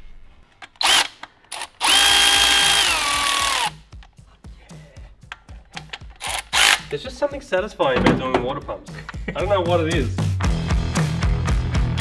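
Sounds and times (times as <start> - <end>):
power tool motor whine: 0.8 - 3.7.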